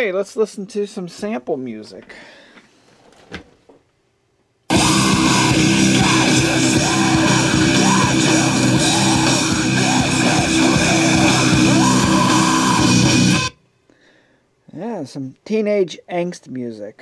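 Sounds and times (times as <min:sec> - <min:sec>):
rock music with guitar and singing: 0:04.7 - 0:13.6.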